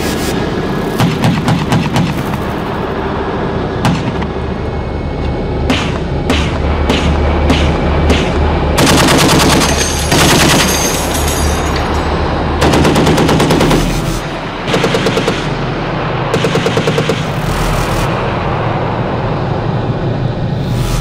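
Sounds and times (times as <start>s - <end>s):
machine gun firing bursts: 5.7s - 11.0s, 12.6s - 15.7s, 16.3s - 17.5s.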